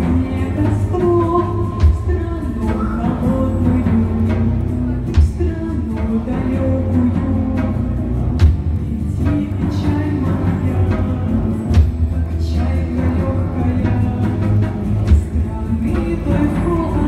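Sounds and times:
woman singing: 0:00.0 - 0:08.0, 0:08.9 - 0:17.0
bass guitar: 0:00.0 - 0:17.0
deep drums: 0:00.0 - 0:17.0
heavy drum beats: 0:00.0 - 0:17.0.

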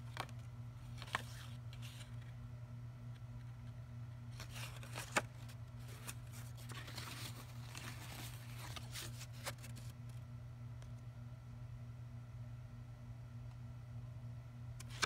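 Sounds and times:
paper rustling: 0:00.0 - 0:02.4, 0:04.3 - 0:10.0
low electrical hum: 0:00.0 - 0:15.0.

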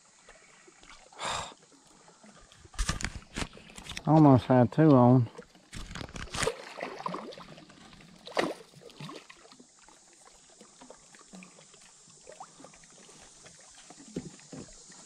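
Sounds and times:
water dripping and lapping: 0:00.1 - 0:15.0
fish splashing at surface: 0:05.7 - 0:09.7.

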